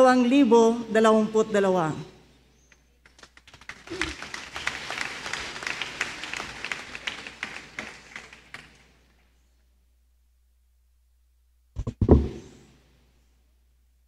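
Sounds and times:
crowd applause: 3.0 - 9.1.

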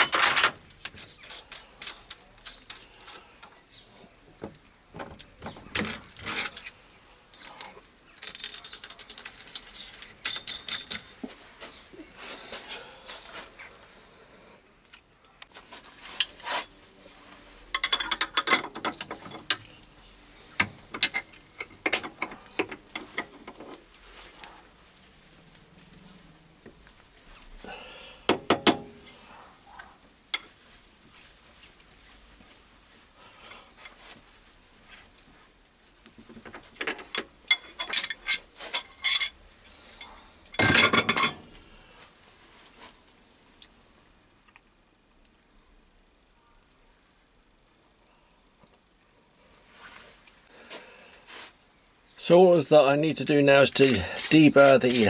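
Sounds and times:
metal clicks and clinks: 7.4 - 11.2, 17.8 - 19.7, 20.6 - 23.7, 36.8 - 41.8
metal clattering on metal: 17.7 - 19.6, 20.6 - 23.8, 36.4 - 39.4, 40.0 - 41.7
metal clicks and knocks: 17.8 - 19.7, 20.6 - 23.8, 28.3 - 29.0.

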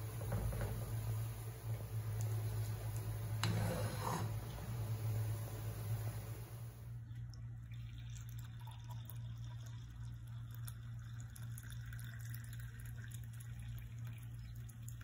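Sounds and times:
steady low hum: 0.0 - 12.0
tea pouring into glass mug: 7.6 - 14.9.

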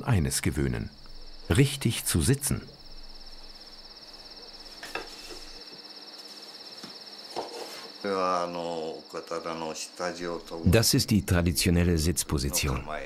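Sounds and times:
man speaking: 0.0 - 2.7, 8.1 - 13.0
insect trill: 0.0 - 13.0.

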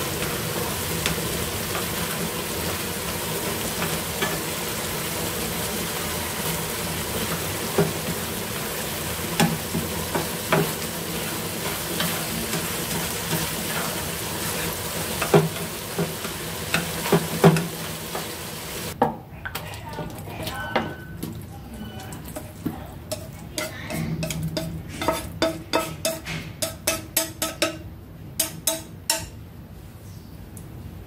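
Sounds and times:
food sizzling in a frying pan: 0.0 - 19.0.

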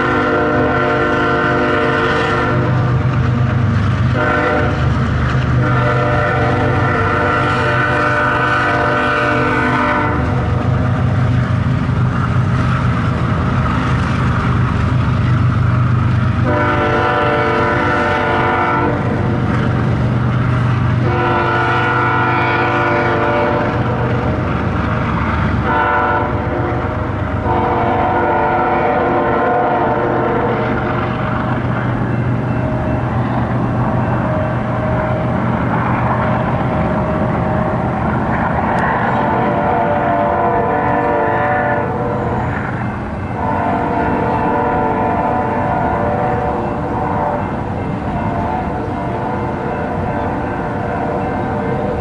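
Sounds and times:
locomotive air horn blasts: 0.0 - 2.8, 4.1 - 4.8, 5.6 - 10.4, 16.4 - 19.2, 21.0 - 24.2, 25.6 - 30.6, 39.2 - 42.4, 43.3 - 47.6
locomotive engine rumble: 0.0 - 52.0
rolling rail cars: 0.0 - 52.0.

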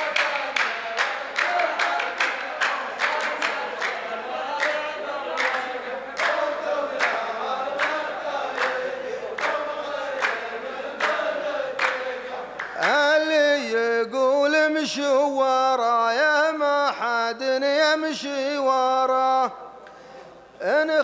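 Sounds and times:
hand claps: 0.0 - 13.2
men chanting in unison: 0.0 - 19.7.

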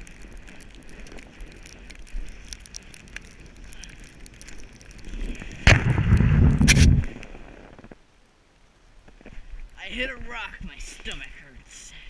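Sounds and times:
sled sliding over snow: 0.0 - 8.0
scraping and crackling on camera: 0.0 - 8.1.

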